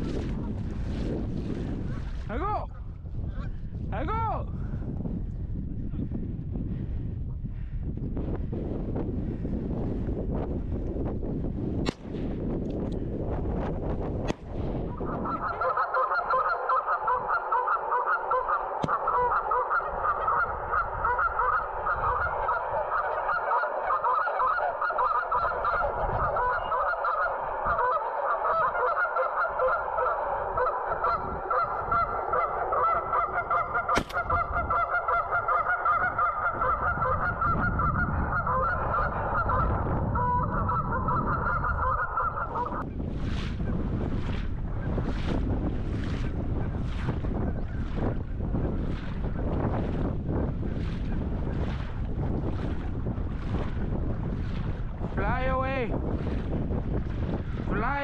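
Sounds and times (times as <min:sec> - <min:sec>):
geese honking: 0:14.9 - 0:42.8.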